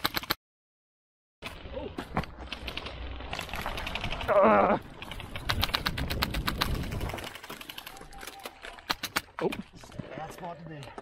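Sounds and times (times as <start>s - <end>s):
airsoft gunfire clicking: 5.2s - 9.4s.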